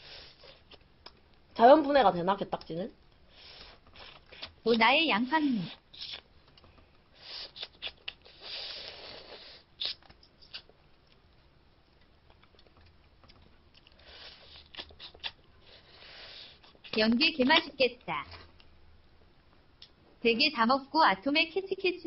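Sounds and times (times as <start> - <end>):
sucking and chewing: 3.1 - 11.3, 11.9 - 17.0.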